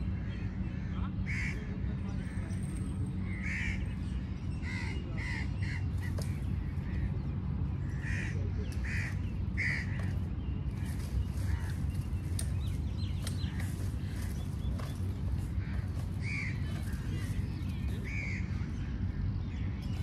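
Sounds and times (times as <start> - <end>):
crow cawing: 7.9 - 10.0.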